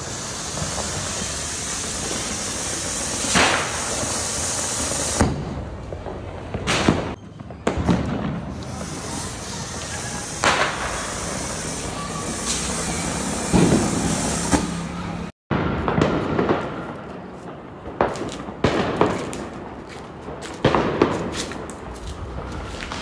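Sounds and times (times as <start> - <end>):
fountain firework hissing: 0.0 - 5.5, 8.2 - 15.3
firecracker bangs: 0.0 - 23.0.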